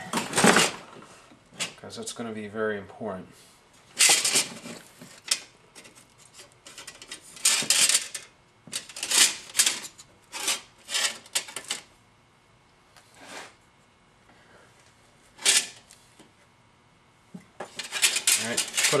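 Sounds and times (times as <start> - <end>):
sheet metal clinking and scraping: 17.7 - 19.0.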